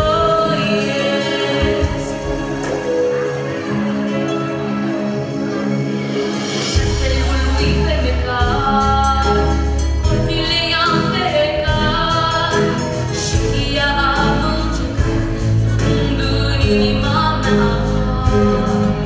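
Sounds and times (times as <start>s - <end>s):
instrumental accompaniment with beat: 0.0s - 19.0s
girl singing into microphone: 10.3s - 12.8s, 16.1s - 19.0s.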